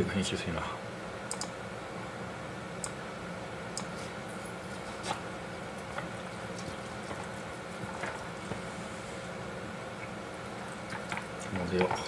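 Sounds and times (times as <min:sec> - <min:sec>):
room hum: 0:00.0 - 0:12.0
chopsticks clicking: 0:01.3 - 0:01.5.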